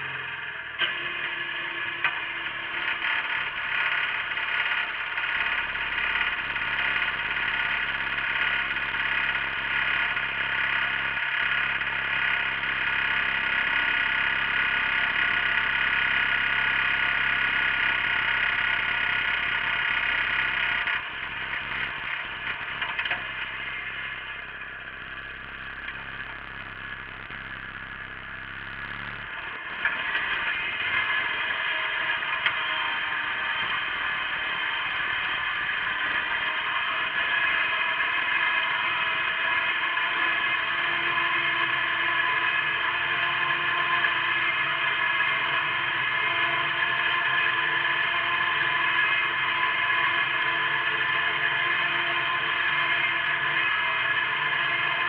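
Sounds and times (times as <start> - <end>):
garden tractor engine running: 3.8 - 32.7.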